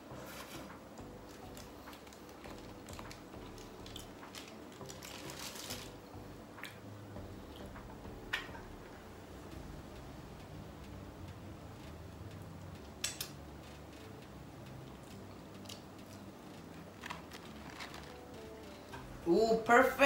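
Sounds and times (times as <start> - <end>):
chewing with small crunches: 14.8 - 18.8.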